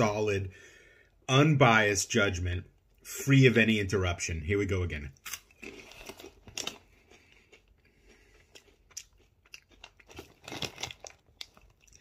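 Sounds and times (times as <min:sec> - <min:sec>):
snack crunching while chewed: 0:05.2 - 0:12.0.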